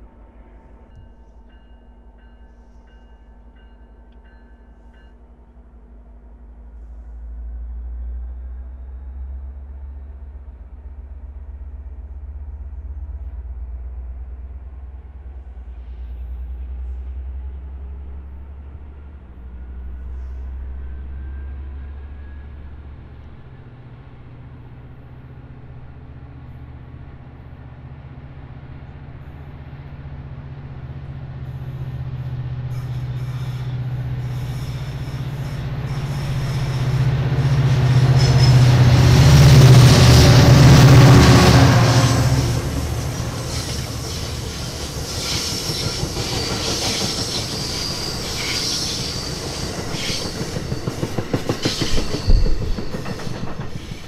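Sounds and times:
diesel locomotive engine rumble: 0.0 - 54.0
faint wheel squeal: 32.7 - 38.8, 43.0 - 54.0.

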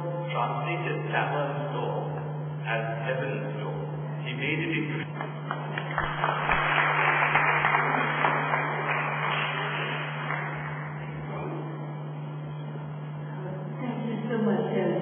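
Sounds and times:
audience applauding: 5.4 - 11.4.

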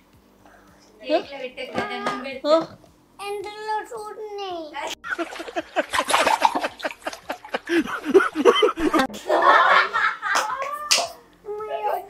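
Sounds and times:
people laughing: 5.0 - 10.8.

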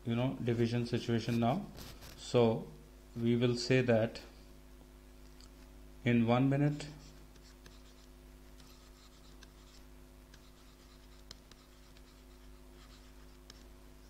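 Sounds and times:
steady low hum: 0.0 - 14.0
stylus writing on tablet: 6.9 - 13.8.

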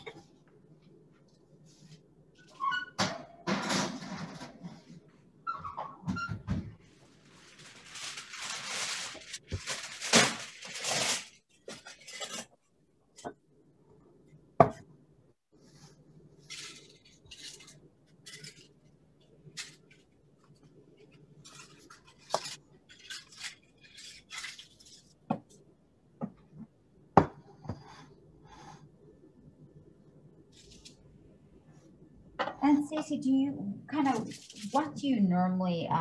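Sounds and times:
rustling: 6.9 - 12.6, 34.0 - 35.0.

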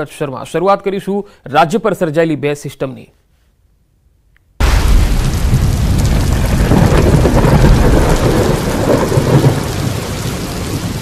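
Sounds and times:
heavy rain downpour: 4.6 - 11.0
thunder rumbling: 4.6 - 11.0.

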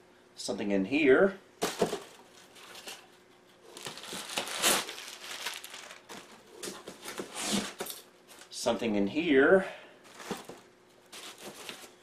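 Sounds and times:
packing material crinkling: 1.6 - 8.6, 10.1 - 12.0.

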